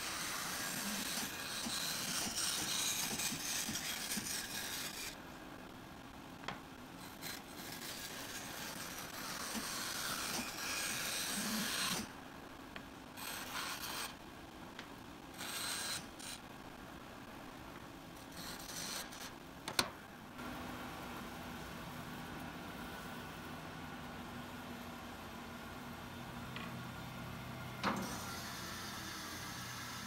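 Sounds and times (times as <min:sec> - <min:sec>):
bandsaw cutting wood: 0:07.6 - 0:12.1.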